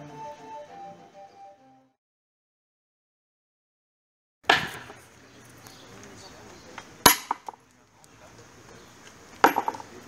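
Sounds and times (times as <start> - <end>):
metal disc clacking on wood: 9.4 - 9.9.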